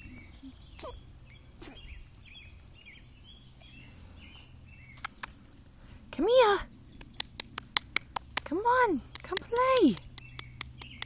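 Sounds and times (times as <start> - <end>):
bird chirping: 0.0 - 5.4, 9.5 - 11.0
low outdoor rumble: 0.0 - 11.0.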